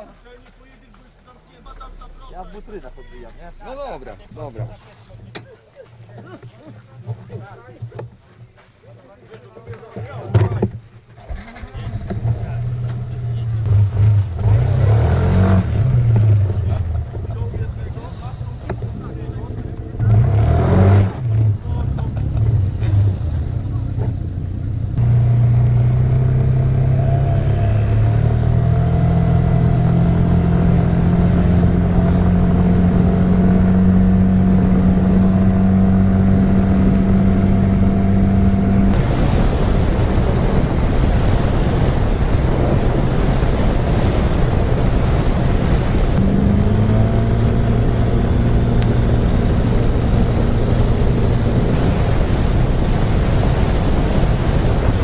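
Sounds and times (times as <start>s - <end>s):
wind on microphone: 27.9s - 55.0s.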